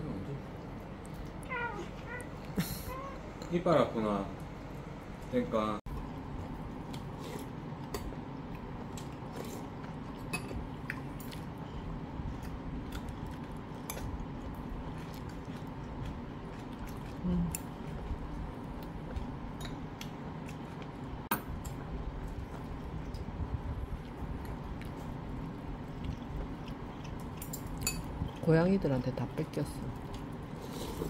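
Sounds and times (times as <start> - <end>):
chewing: 6.4 - 28.5.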